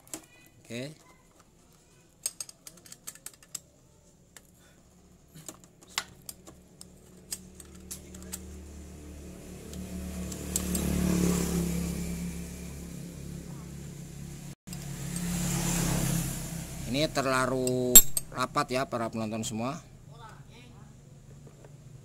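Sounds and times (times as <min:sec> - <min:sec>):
passing vehicle engine: 0:07.2 - 0:18.7.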